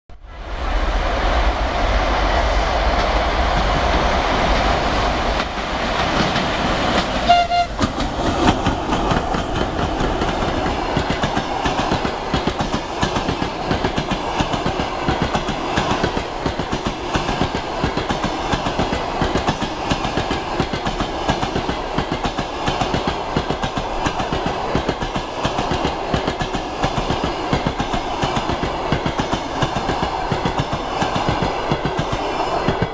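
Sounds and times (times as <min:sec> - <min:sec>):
train wheels clacking on rails: 0:02.4 - 0:32.9
train horn toot: 0:07.2 - 0:07.9.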